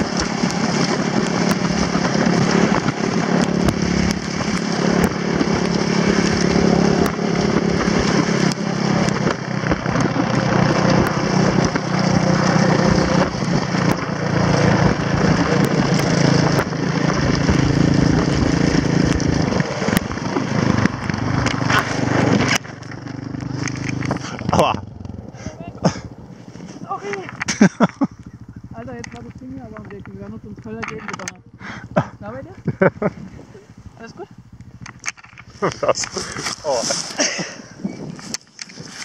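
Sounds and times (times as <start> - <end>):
sled runners scraping on snow: 0.0 - 27.8, 31.5 - 34.5, 35.4 - 39.0
quad bike engine running: 0.0 - 39.0
clicks: 27.0 - 32.0.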